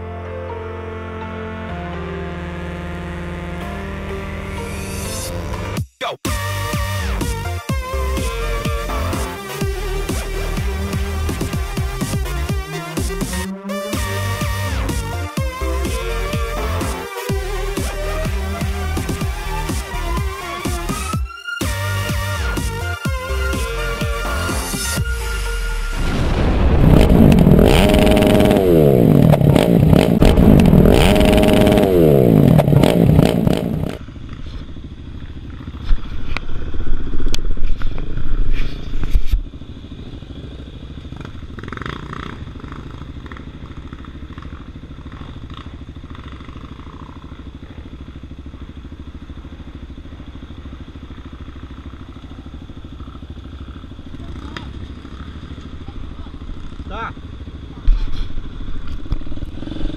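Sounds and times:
intro music with sweeps: 0:00.0 - 0:34.0
motorcycles idling: 0:07.0 - 0:21.1, 0:27.0 - 0:59.9.

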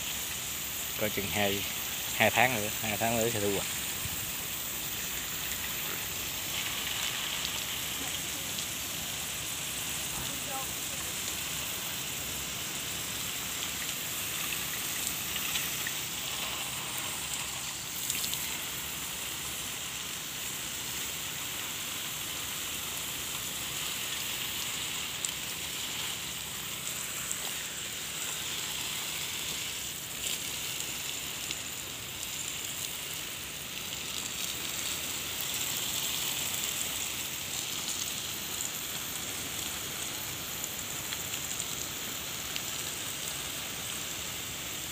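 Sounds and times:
water jet spraying onto plants: 0:00.0 - 0:44.9.

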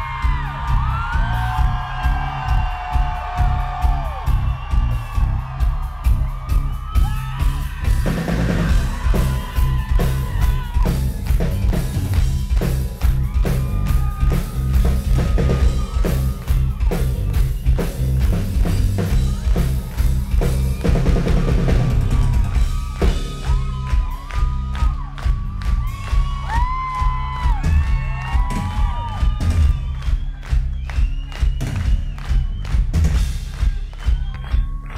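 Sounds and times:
drum kit beat: 0:00.0 - 0:34.9
heavy bass: 0:00.0 - 0:34.9
rock band playing live: 0:00.0 - 0:34.9.

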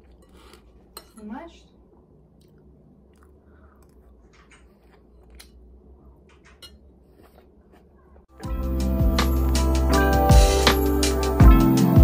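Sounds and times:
background music: 0:08.3 - 0:12.0.

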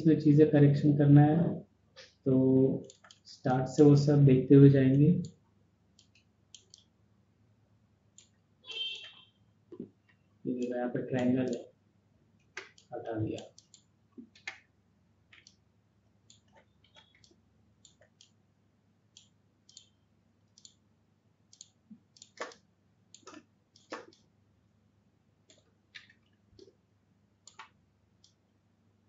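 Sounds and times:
computer mouse and keyboard clicking: 0:02.8 - 0:03.3, 0:06.0 - 0:06.9, 0:08.2 - 0:08.4, 0:10.6 - 0:11.7, 0:12.4 - 0:14.7, 0:15.3 - 0:15.6, 0:16.2 - 0:18.4, 0:19.2 - 0:20.8, 0:21.5 - 0:24.3, 0:25.5 - 0:26.8, 0:27.4 - 0:28.4.

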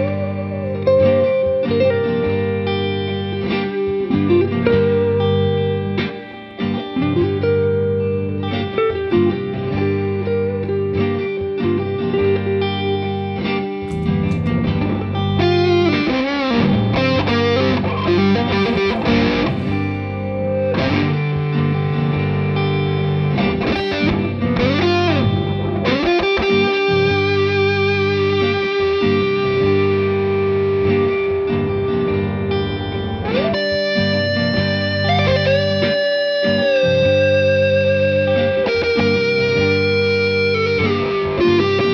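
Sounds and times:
electric guitar solo: 0:00.0 - 0:41.9
steady low bass notes: 0:11.8 - 0:26.0, 0:26.6 - 0:35.9.

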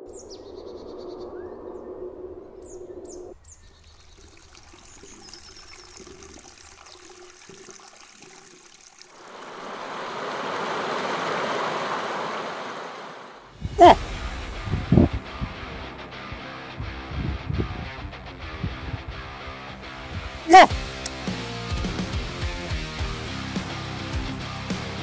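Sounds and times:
faint bird chirps: 0:00.0 - 0:07.1
stream water rushing over rocks: 0:04.3 - 0:14.0.

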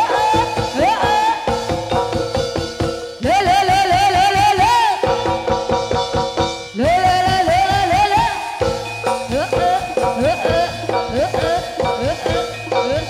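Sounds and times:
drum strokes: 0:00.0 - 0:13.0
repeated metallophone notes: 0:00.0 - 0:13.0
wavering high melody line: 0:07.7 - 0:13.0.

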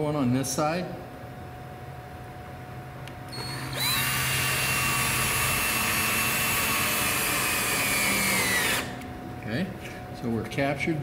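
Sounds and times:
cordless drill whining: 0:03.3 - 0:09.0.

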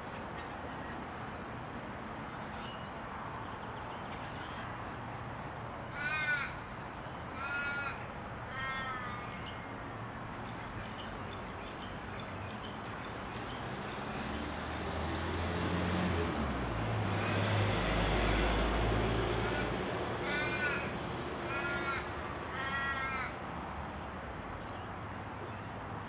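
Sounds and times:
bird cawing: 0:05.9 - 0:06.6, 0:07.3 - 0:09.7, 0:19.3 - 0:23.4.

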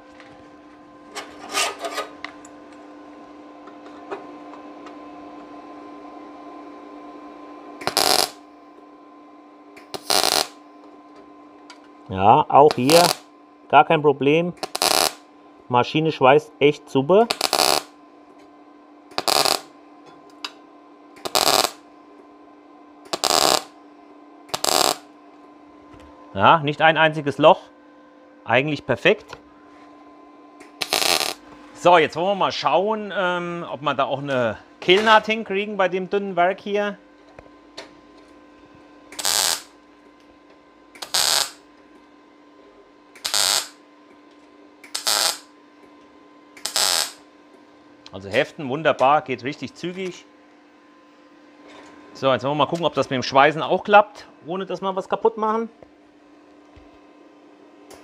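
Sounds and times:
faint steady hum: 0:00.0 - 0:58.0
welding arc crackling: 0:07.8 - 0:08.5, 0:09.8 - 0:10.6, 0:12.7 - 0:13.3, 0:14.6 - 0:15.3, 0:17.2 - 0:18.0, 0:19.1 - 0:19.8, 0:21.2 - 0:21.9, 0:23.1 - 0:23.8, 0:24.5 - 0:25.1, 0:30.6 - 0:31.5, 0:39.1 - 0:39.8, 0:41.0 - 0:41.7, 0:43.2 - 0:43.8, 0:44.8 - 0:45.5, 0:46.5 - 0:47.3.

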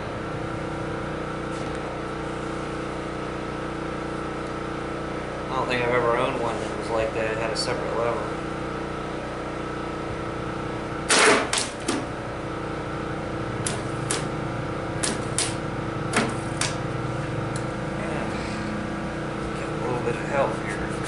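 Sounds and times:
steady background hum: 0:00.0 - 0:21.0
clicks and knocks on engine: 0:11.1 - 0:12.1, 0:13.6 - 0:14.3, 0:15.0 - 0:16.8.

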